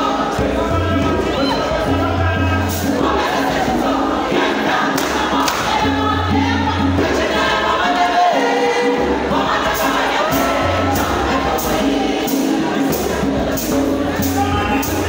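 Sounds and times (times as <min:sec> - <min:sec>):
repeating low bass line: 0:00.0 - 0:04.3
choir singing gospel: 0:00.0 - 0:15.0
sharp hand claps: 0:05.0 - 0:05.7.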